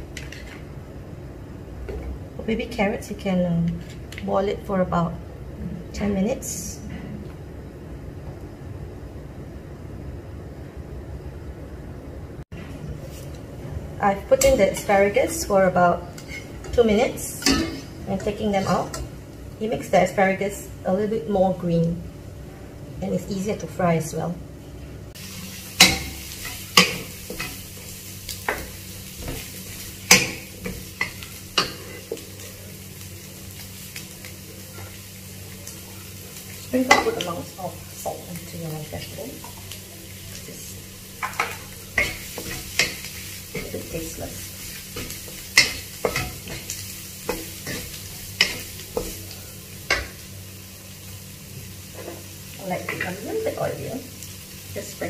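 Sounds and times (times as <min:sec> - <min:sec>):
spatula scraping and knocking on wok: 0:00.2 - 0:00.6, 0:25.8 - 0:27.6, 0:28.4 - 0:32.3, 0:41.2 - 0:49.2
faint sizzle: 0:12.6 - 0:55.0.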